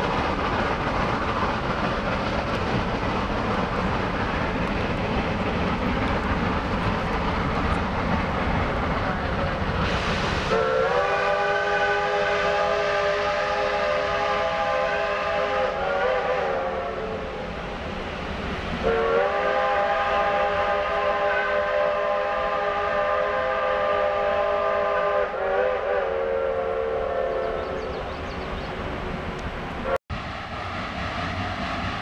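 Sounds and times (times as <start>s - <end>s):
steam locomotive whistle blowing: 9.8s - 17.4s, 18.8s - 27.9s.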